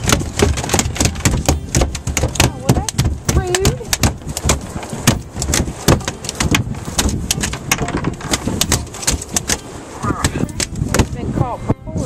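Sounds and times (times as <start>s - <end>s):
ray slapping on boat deck: 0.0s - 11.5s.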